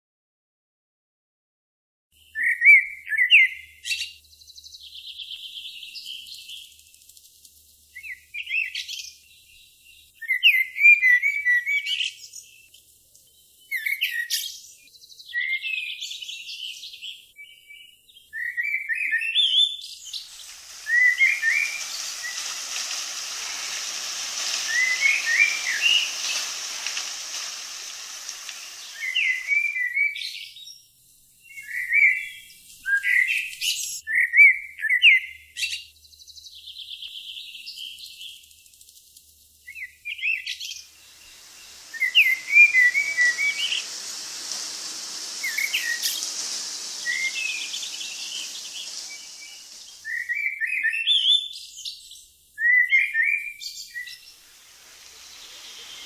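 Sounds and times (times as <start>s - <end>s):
songbirds chirping and singing: 2.3s - 30.6s, 39.8s - 51.3s
steady rushing hiss: 20.0s - 30.3s, 40.5s - 50.8s, 53.8s - 56.0s.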